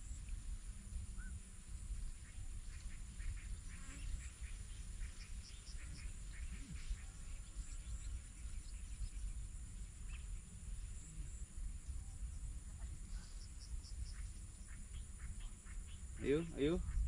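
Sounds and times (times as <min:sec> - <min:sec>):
insects with thin high tone: 0:00.0 - 0:17.0
steady low rumble: 0:00.0 - 0:17.0.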